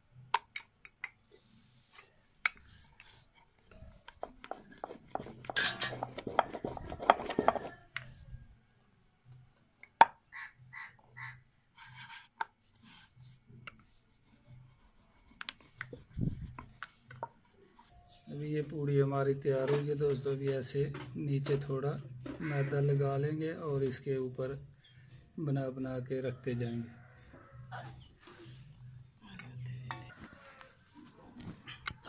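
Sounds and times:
dough rolling and rubbing: 1.1s - 7.9s.

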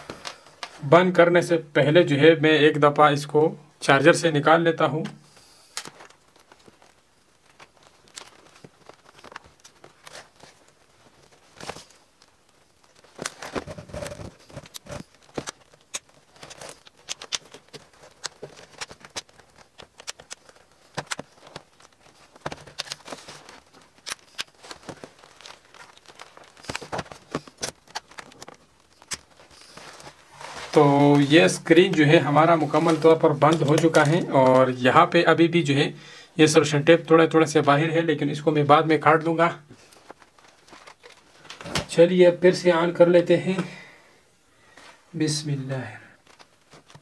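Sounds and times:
hands handling laptop clicks and taps: 13.2s - 23.2s.

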